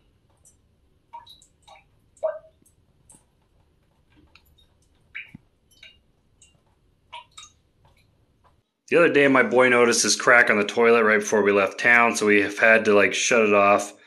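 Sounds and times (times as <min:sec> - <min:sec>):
water drops plinking: 0:01.2 - 0:02.7, 0:04.4 - 0:06.6, 0:07.2 - 0:07.6.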